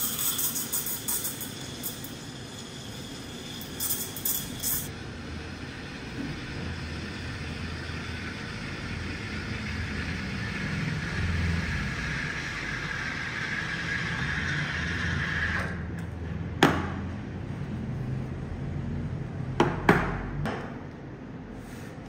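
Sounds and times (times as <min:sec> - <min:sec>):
steam wand hissing in milk: 0:00.0 - 0:15.8.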